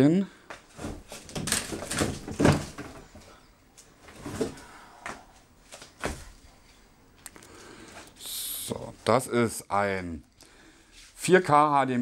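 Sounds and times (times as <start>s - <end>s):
soft knocks and rustles: 0.5s - 3.4s.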